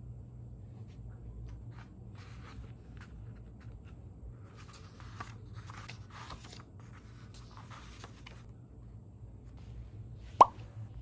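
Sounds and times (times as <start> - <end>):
low steady hum: 0.0 - 11.0
book pages rustling: 0.8 - 8.6.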